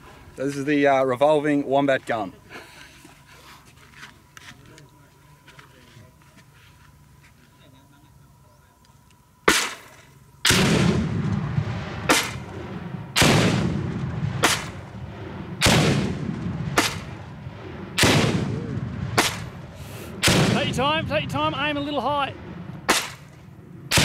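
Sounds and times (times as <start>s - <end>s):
grenade launcher firing: 9.5s - 14.9s, 15.6s - 17.3s, 17.9s - 19.6s, 20.2s - 20.8s, 22.4s - 24.0s
grenade explosion boom: 10.5s - 24.0s.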